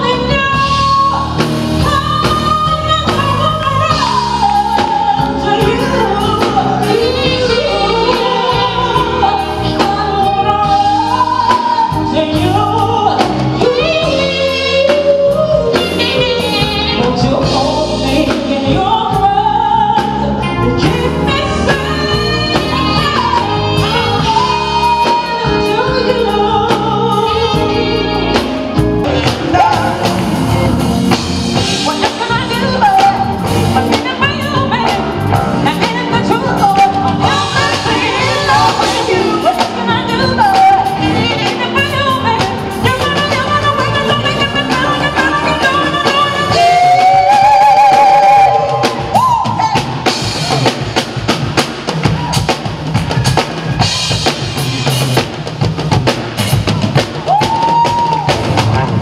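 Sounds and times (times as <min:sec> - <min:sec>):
woman singing with vibrato: 0:00.0 - 0:30.1, 0:31.1 - 0:50.6
band playing: 0:00.0 - 0:59.0.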